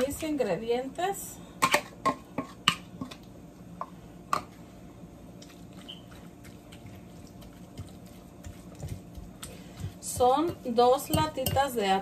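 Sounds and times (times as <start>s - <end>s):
fork mashing tuna: 5.4s - 11.7s.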